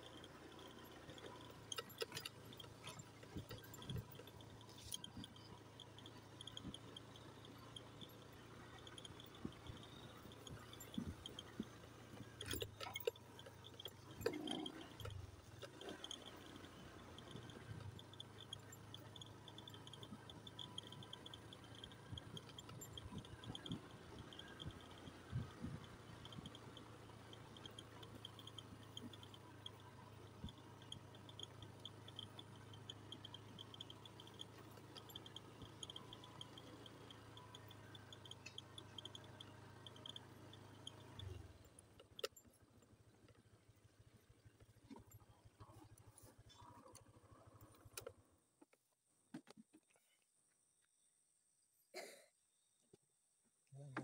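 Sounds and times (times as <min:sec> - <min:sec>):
short high insect chirps: 0:14.4 - 0:41.6.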